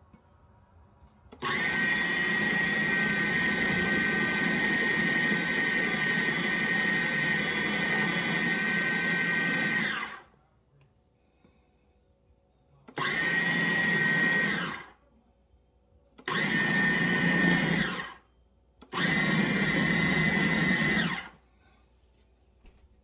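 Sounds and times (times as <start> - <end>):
food processor motor pulsing: 1.3 - 10.3, 12.9 - 14.9, 16.2 - 18.2, 18.8 - 21.4.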